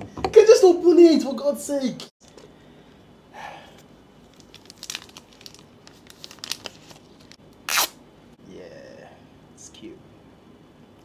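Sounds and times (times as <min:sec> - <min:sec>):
plastic film crinkling peeled off: 0:04.2 - 0:08.0
plastic film ripping: 0:04.3 - 0:08.0.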